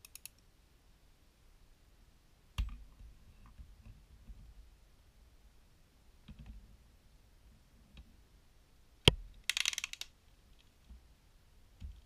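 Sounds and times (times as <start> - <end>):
plastic parts clicking: 9.4 - 10.7
rattle of clicks: 9.4 - 10.7.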